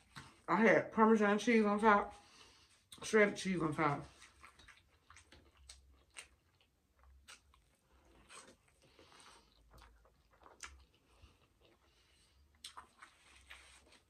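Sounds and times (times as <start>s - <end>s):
chewing corn on the cob: 4.0s - 14.0s.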